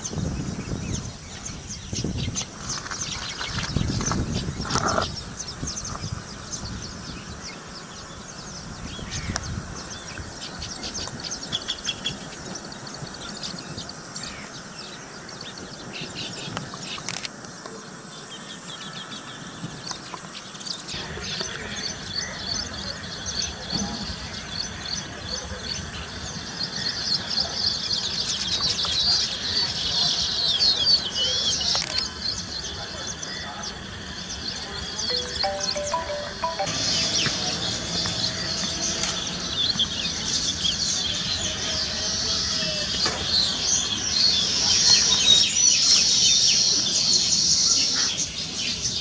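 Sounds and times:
birds chattering and chirping: 0.0 - 17.1.

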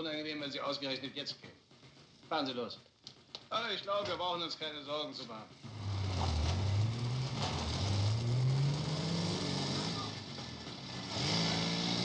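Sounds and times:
car engine accelerating: 5.6 - 12.0.

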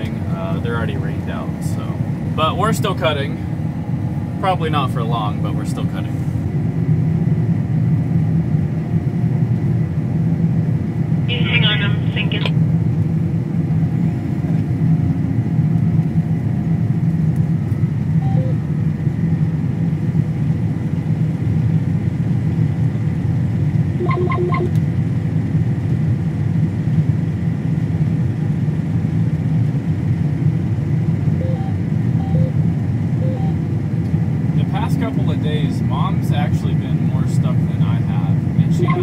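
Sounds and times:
combine harvester drone: 0.0 - 39.0
short beeps: 18.2 - 18.6, 24.0 - 24.8, 31.4 - 32.6, 33.2 - 33.6, 38.7 - 39.0.

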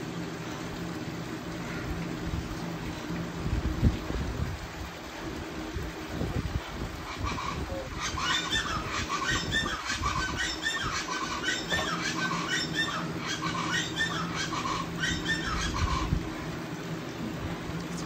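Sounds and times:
bird squawking: 7.0 - 16.2.

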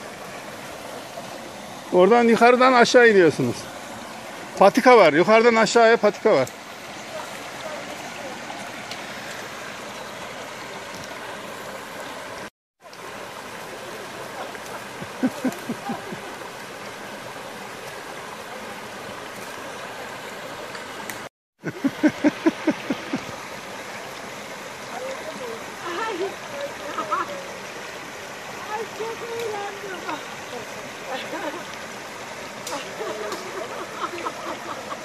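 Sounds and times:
stream rushing over rocks: 0.0 - 35.0.

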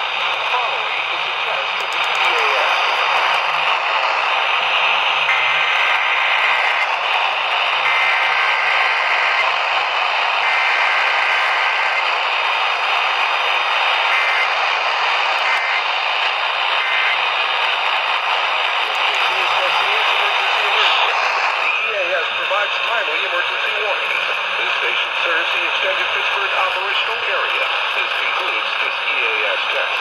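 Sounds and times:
radio static hiss: 0.0 - 30.0
warbling two-tone data bursts: 18.8 - 21.9.

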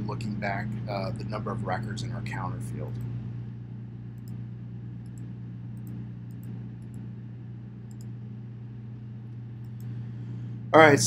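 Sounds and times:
low electrical hum: 0.0 - 11.0
computer mouse clicking: 4.2 - 4.4, 5.0 - 7.1, 7.9 - 8.2, 9.6 - 10.0.

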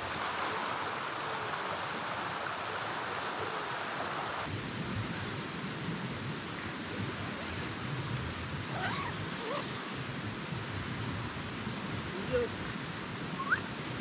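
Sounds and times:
river rushing: 0.0 - 14.0
high wavering animal call: 13.4 - 13.7.

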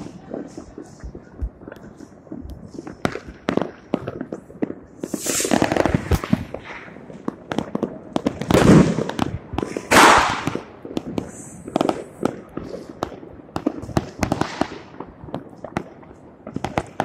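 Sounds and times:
firecrackers cracking and popping: 0.0 - 17.0
heavy firework bangs: 2.8 - 15.1.

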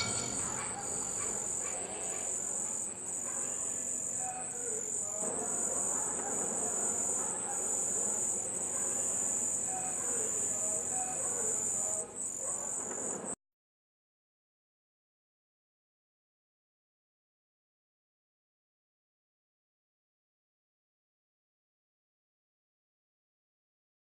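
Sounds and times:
crickets chirping: 0.0 - 13.4.

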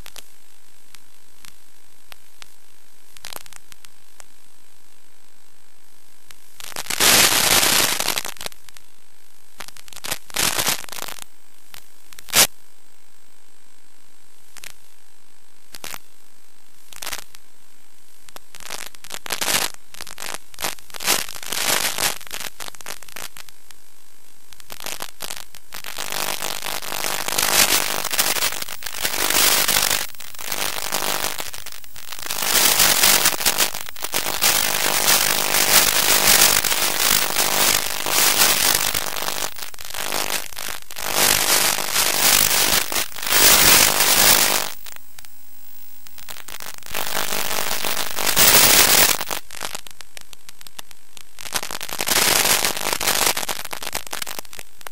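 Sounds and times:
radio static hiss: 0.0 - 4.3, 6.2 - 8.8, 9.5 - 13.2, 14.4 - 17.5, 18.1 - 54.9
radio crackling bursts: 6.6 - 8.5, 9.6 - 12.5, 18.4 - 23.5, 24.6 - 54.9.

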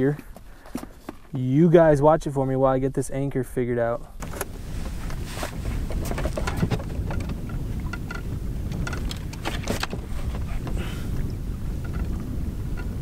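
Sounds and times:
clicks and knocks of gear: 4.2 - 10.5
wind buffeting microphone: 4.2 - 13.0.

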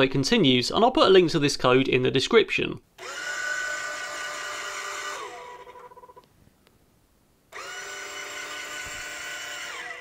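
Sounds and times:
electric motor whining: 3.0 - 6.1, 7.5 - 10.0.

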